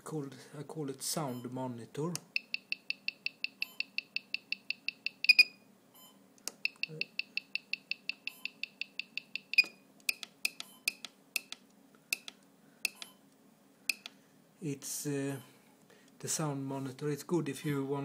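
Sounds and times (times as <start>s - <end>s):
electronic beeper beeping: 2.4s - 9.8s
button clicks: 6.4s - 13.2s.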